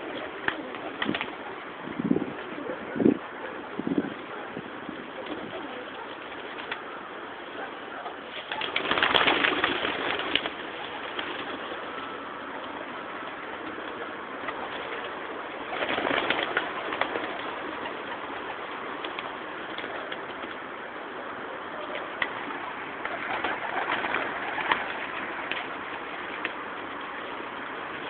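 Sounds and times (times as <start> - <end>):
pigeon wing clatter: 0.0 - 1.4, 5.2 - 6.9, 8.2 - 12.1, 13.3 - 20.6, 21.8 - 26.6
background noise: 0.0 - 28.0.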